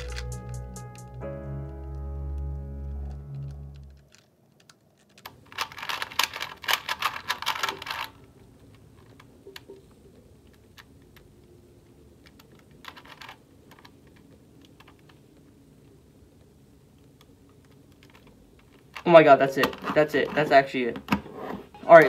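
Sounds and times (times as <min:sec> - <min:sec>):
puzzle cube clicking as turned: 0:03.4 - 0:15.5, 0:16.4 - 0:19.1.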